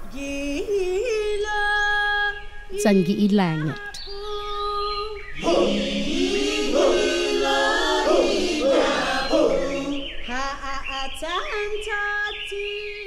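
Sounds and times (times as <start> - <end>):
choir chanting: 5.4 - 10.4.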